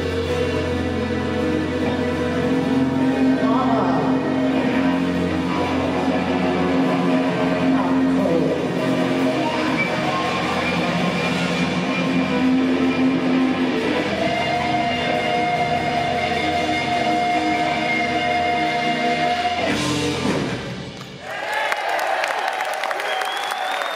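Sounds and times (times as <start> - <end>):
rock band sustained chord: 0.0 - 21.0
audience cheering and applauding: 20.9 - 23.9.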